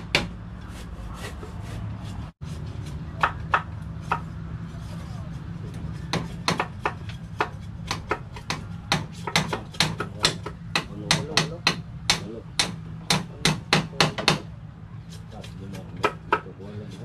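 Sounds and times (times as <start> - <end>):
hammer striking nails: 0.0 - 0.4, 6.1 - 14.5.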